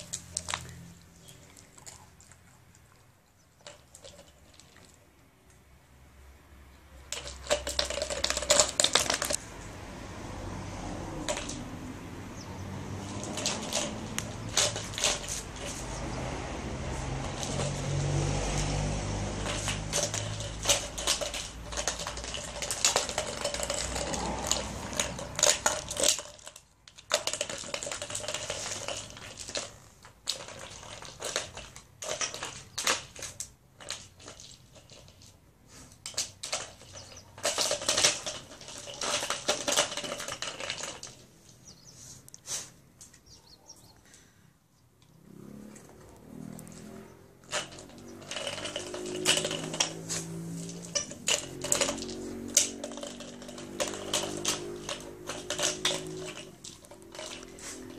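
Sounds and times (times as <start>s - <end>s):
treat ball clicking on concrete: 7.0s - 9.4s, 10.8s - 12.0s, 12.9s - 35.4s, 46.2s - 57.9s.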